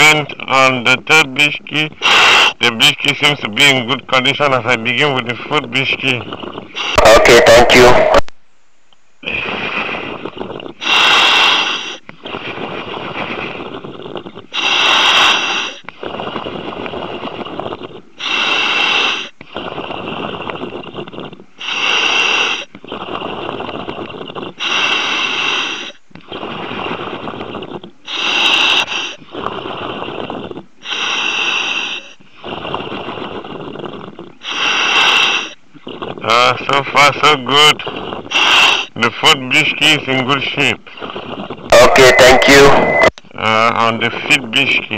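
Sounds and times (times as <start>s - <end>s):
regulator breath hissing: 2.0s - 2.6s, 9.2s - 17.0s, 18.0s - 23.0s, 24.3s - 26.4s, 28.0s - 29.4s, 30.8s - 32.6s, 34.4s - 35.6s, 38.2s - 39.0s.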